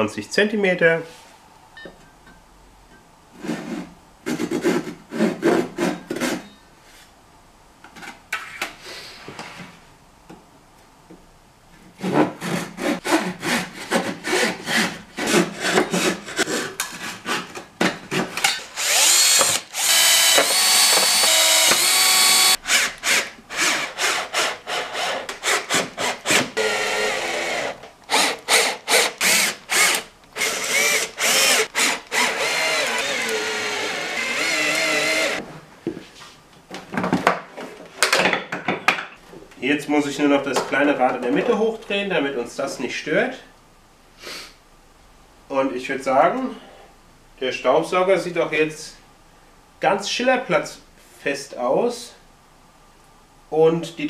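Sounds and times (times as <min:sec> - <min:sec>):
hand saw cutting wood: 0:03.4 - 0:06.5, 0:12.0 - 0:35.4
cordless drill driving screws: 0:18.6 - 0:35.4.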